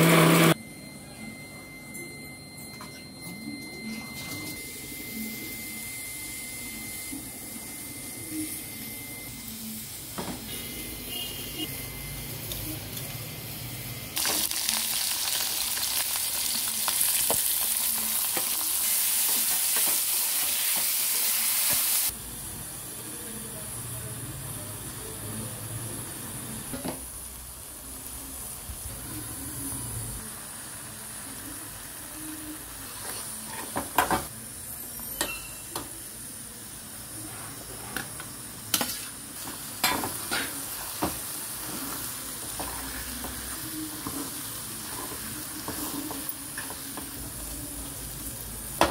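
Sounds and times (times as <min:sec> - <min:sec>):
food sizzling in hot oil: 0:04.6 - 0:25.8, 0:35.7 - 0:48.9
spoon stirring and scraping pan: 0:32.9 - 0:34.0, 0:37.4 - 0:47.2.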